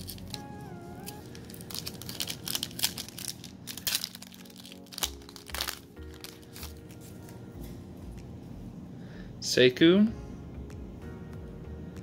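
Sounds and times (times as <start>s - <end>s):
foil wrapper crinkling and tearing: 0.0s - 7.2s
background music: 0.0s - 12.0s.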